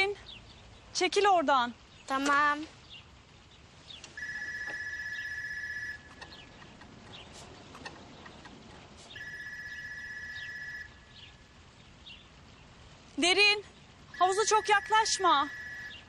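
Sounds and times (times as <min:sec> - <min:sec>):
high electronic ring: 0:04.2 - 0:06.0, 0:09.2 - 0:10.9.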